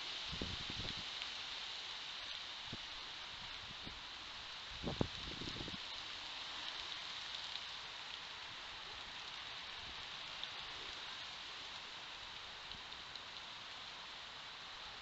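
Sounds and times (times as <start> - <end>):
animal moving over dry leaves: 0.0 - 15.0
steady hiss: 0.0 - 15.0
faint ticks: 5.0 - 14.1.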